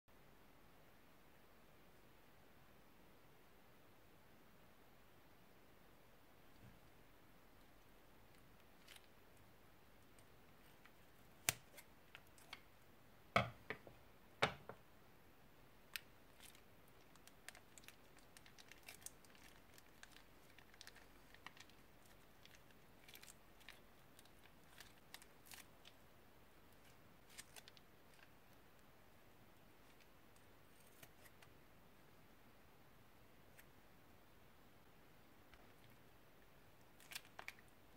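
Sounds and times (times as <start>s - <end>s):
plastic bag crinkling: 16.0s - 26.0s.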